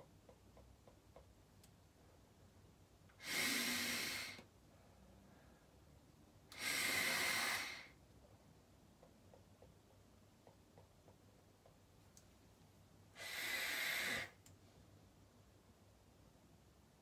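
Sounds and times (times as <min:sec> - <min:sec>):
hissing nasal inhalations: 0:03.2 - 0:04.4, 0:06.5 - 0:08.0, 0:13.1 - 0:14.4.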